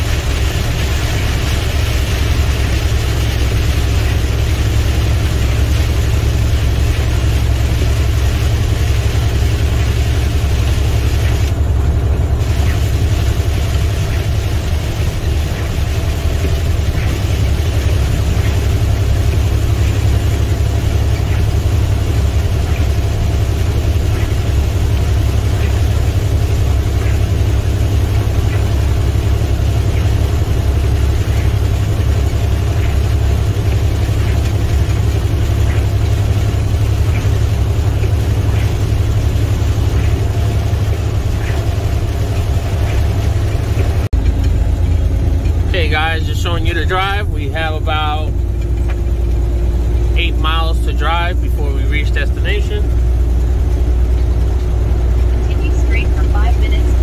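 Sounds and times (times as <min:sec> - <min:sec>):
rain and road spray hiss: 0:00.0 - 0:11.6, 0:12.3 - 0:44.1
truck diesel engine drone: 0:00.0 - 0:57.0.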